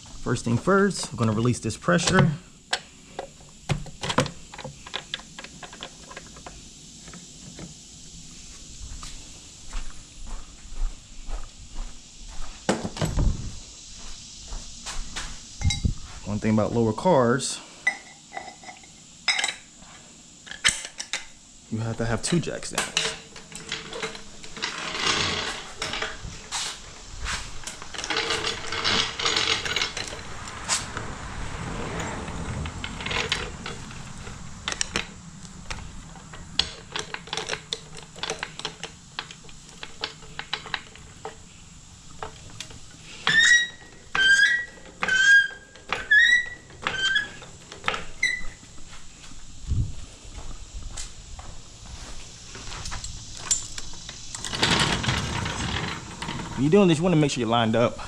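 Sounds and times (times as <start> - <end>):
floor jack scraping on concrete: 22.9 - 35.0, 54.3 - 57.0
metal clicks and knocks: 35.7 - 41.4
high chirping squeaks: 43.3 - 47.4, 48.2 - 48.6.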